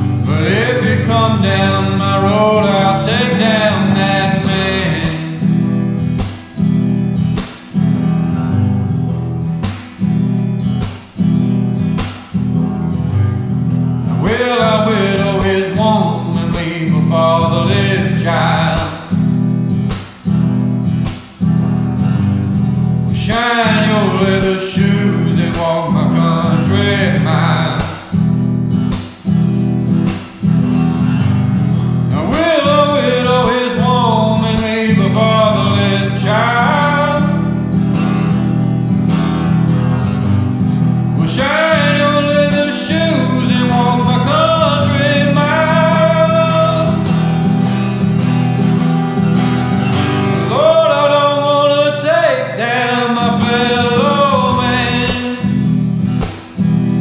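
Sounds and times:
man singing: 0.0 - 5.8, 14.0 - 19.2, 23.1 - 28.2, 32.1 - 37.7, 41.0 - 47.4, 49.8 - 55.8
acoustic guitar strumming: 0.0 - 57.0.

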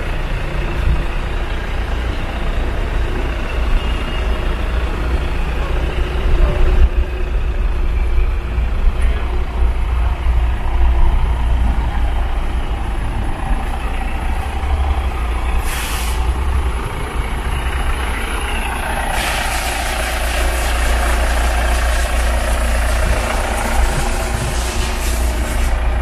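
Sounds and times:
vehicle low rumble: 0.0 - 26.0
loud rushing noise: 14.3 - 26.0
hiss of air: 15.6 - 16.4, 19.0 - 26.0.

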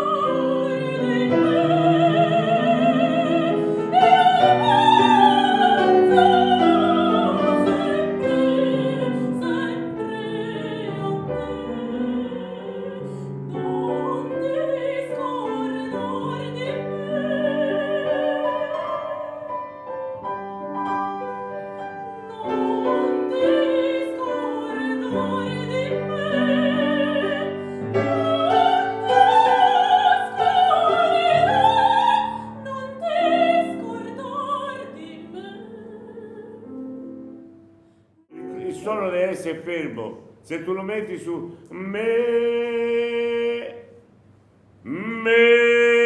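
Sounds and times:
woman singing opera: 0.0 - 20.2, 21.7 - 37.3
grand piano: 0.0 - 46.0.

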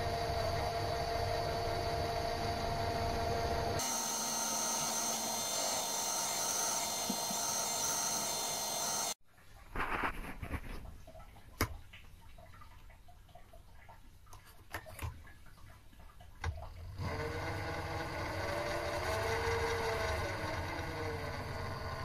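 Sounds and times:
lathe motor whine: 0.0 - 9.2, 17.0 - 22.0.

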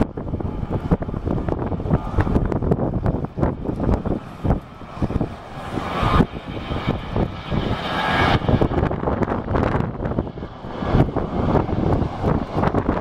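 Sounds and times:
jet engines roaring: 0.0 - 13.0
wind buffeting microphone: 0.0 - 13.0.

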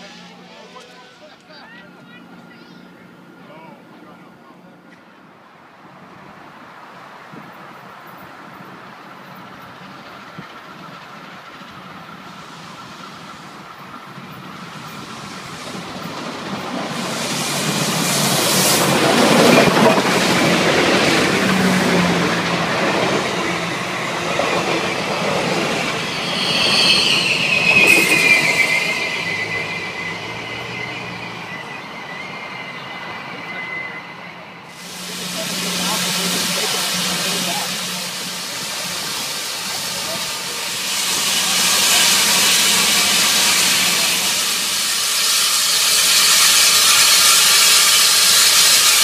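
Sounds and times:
steam train rumble and rail noise: 0.0 - 49.0
high wheel squeal: 16.9 - 49.0.

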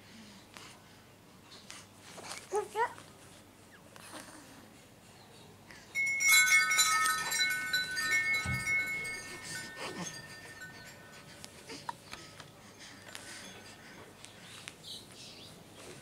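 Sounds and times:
small metal chimes ringing: 5.9 - 12.4.

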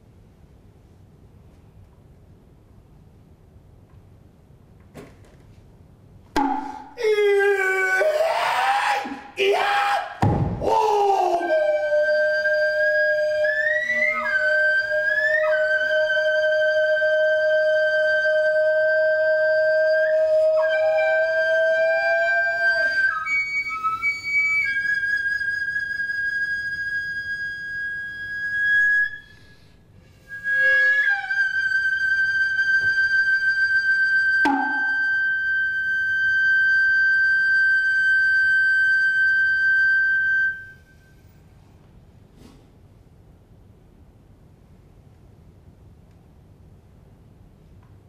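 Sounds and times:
sharp knock: 6.4 - 7.0, 10.2 - 10.8, 34.4 - 35.1
bamboo flute long piercing notes: 6.4 - 41.4.

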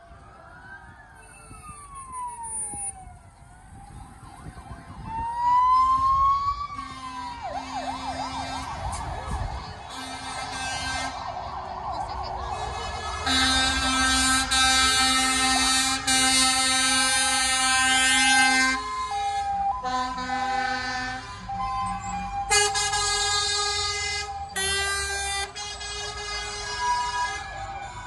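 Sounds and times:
fast warbling siren: 0.0 - 9.9
fire engine sirens wailing: 0.0 - 28.0
low horn blasts: 6.7 - 11.3, 12.5 - 27.9.

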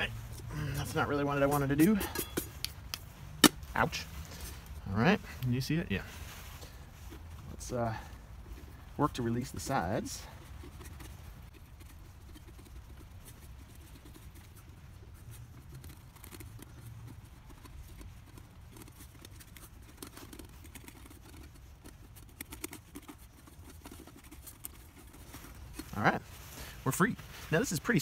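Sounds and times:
scraping against metal pot: 1.7 - 2.6.

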